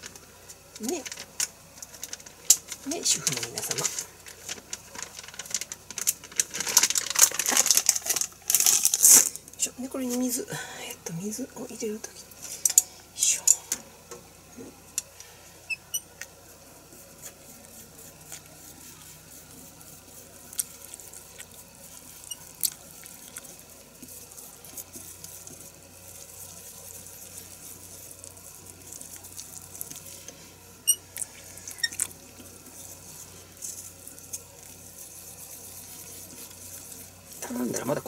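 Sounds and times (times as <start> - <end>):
wet squishing of batter: 14.6 - 38.0.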